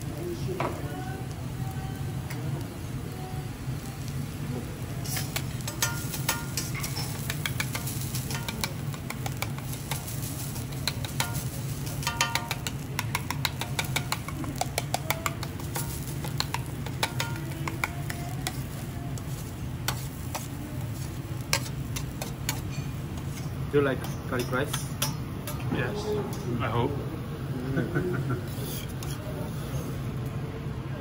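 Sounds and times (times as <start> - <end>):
garlic frying: 0.0 - 30.2
spatula scraping on griddle: 5.0 - 25.6, 28.4 - 30.0.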